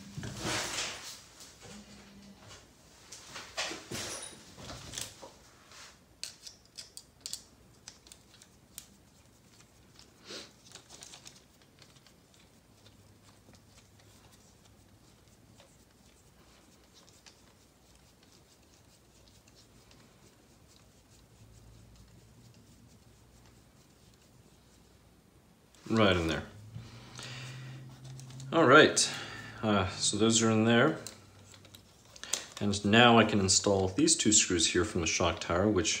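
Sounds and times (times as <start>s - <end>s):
plastic parts clicking and knocking: 6.2s - 8.9s.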